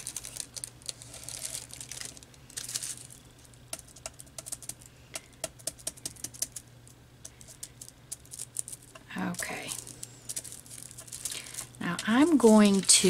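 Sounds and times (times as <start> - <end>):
tissue paper rustling: 0.0 - 3.1, 9.4 - 13.0
small taps and clicks on paper: 3.7 - 6.6.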